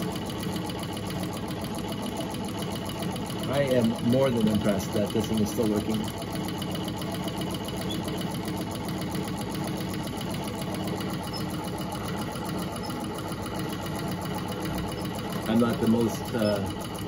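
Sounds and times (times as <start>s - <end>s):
treadle sewing machine clatter: 0.0s - 17.0s.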